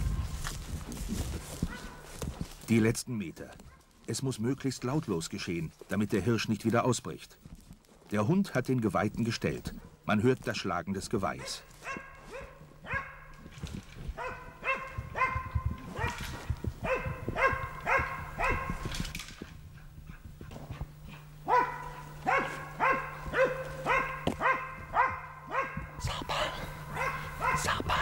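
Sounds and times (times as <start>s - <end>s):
dog barking: 1.4s - 2.2s, 11.4s - 13.5s, 14.2s - 19.0s, 20.1s - 26.0s, 26.7s - 28.0s.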